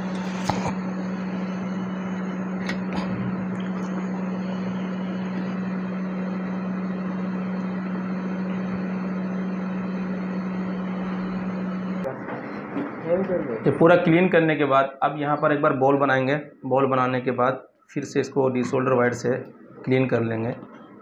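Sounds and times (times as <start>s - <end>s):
small electric fan motor humming: 0.0s - 13.8s.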